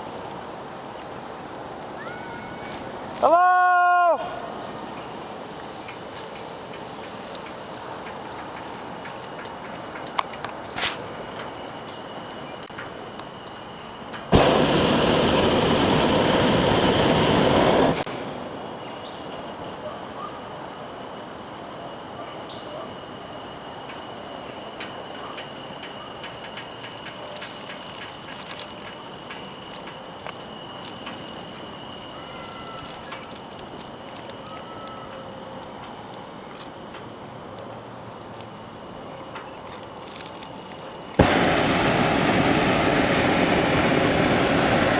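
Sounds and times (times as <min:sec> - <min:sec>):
insect chorus: 0:00.0 - 0:44.9
propane burner roaring: 0:14.1 - 0:18.1, 0:41.2 - 0:44.9.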